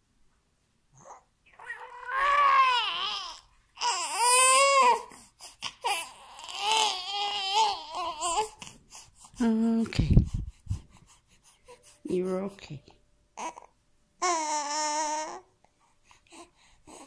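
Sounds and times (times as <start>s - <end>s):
baby crying: 1.0s - 8.7s, 13.4s - 15.5s.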